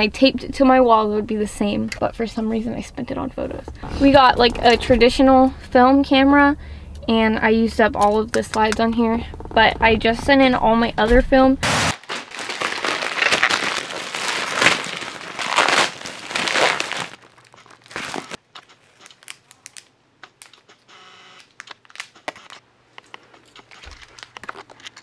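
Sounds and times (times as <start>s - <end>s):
packaging crinkling and rustling: 11.9s - 20.8s, 21.4s - 25.0s.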